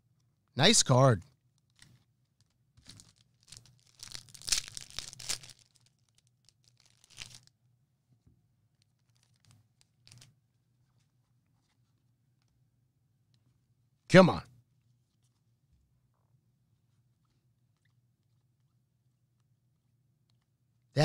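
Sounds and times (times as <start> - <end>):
wrapper tearing and crinkling: 2.8 - 7.5, 9.0 - 10.3.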